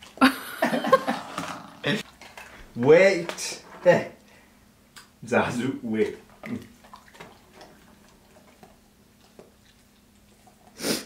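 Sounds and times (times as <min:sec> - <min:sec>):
dog chewing and gulping: 0:01.4 - 0:02.8, 0:06.0 - 0:10.8.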